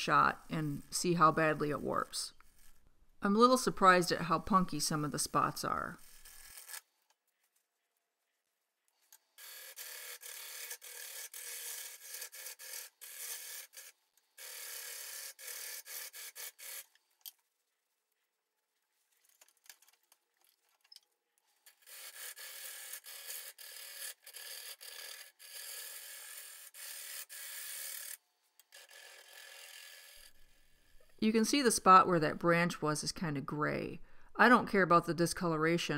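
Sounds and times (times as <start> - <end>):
lathe tool cutting wood: 9.4 - 13.8.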